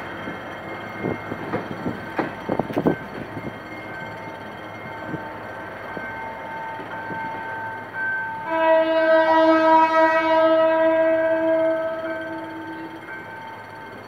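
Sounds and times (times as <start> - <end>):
train wheels knocking on rail joints: 0.0 - 4.4
train horn: 8.4 - 13.1.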